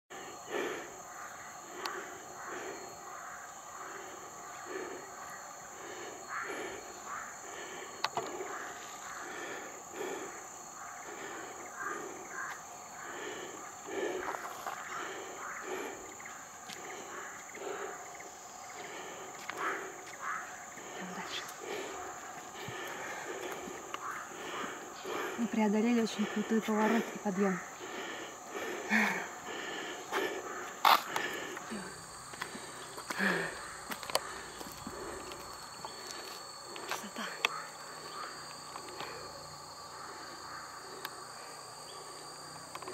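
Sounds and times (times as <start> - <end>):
insects droning: 0.0 - 42.9
footsteps on paved road: 12.3 - 13.3, 13.9 - 17.8, 18.8 - 25.4, 27.8 - 39.3.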